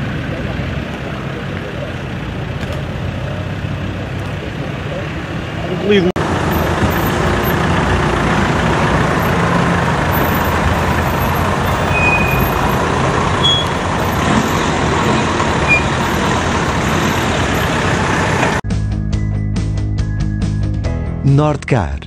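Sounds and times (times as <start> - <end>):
off-road vehicle engines rumbling: 0.0 - 18.6
short high-pitched squeaks: 11.2 - 17.6.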